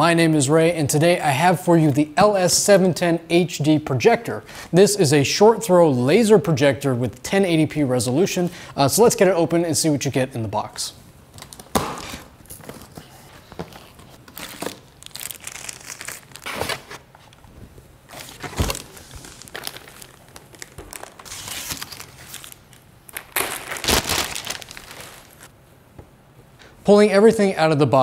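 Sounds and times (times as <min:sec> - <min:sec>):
plastic crinkling: 0:11.4 - 0:17.5, 0:18.1 - 0:25.5.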